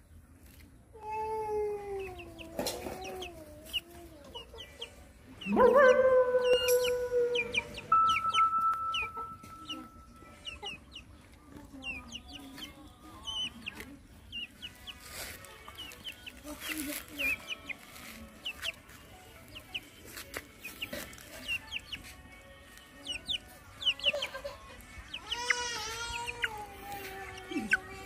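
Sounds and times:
chickens clucking: 0:00.0 - 0:28.0
short high chirps: 0:07.8 - 0:09.9.

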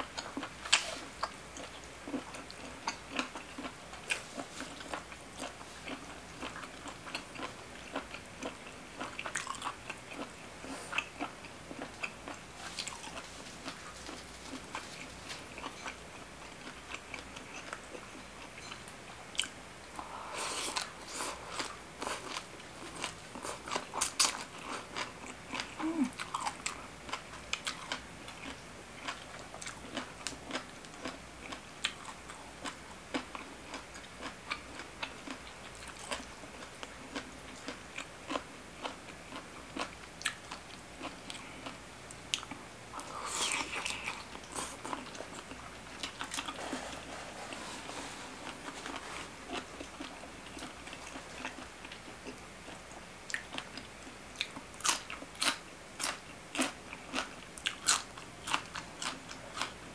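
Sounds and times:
chewing and crunching food: 0:00.0 - 0:59.9.

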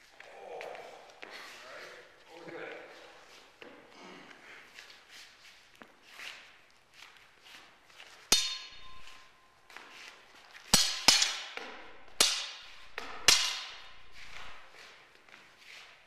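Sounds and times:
swords clashing: 0:08.2 - 0:09.4, 0:10.6 - 0:14.7.

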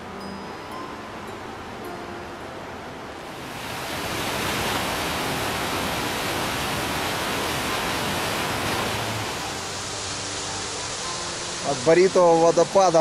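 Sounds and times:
waterfall rushing: 0:03.2 - 0:13.0.

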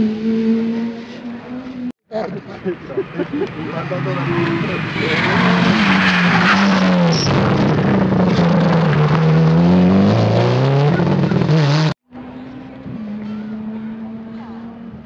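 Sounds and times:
rally car engine revving: 0:03.4 - 0:15.0.

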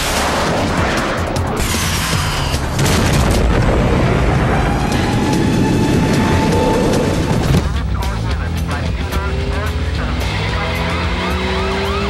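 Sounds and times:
film soundtrack music: 0:00.0 - 0:12.0
explosions booming: 0:02.6 - 0:07.8.

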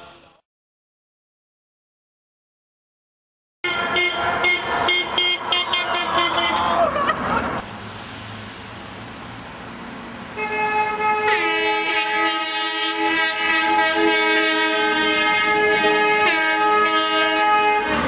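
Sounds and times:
vehicle horn blasts: 0:03.6 - 0:06.7, 0:10.4 - 0:18.0.

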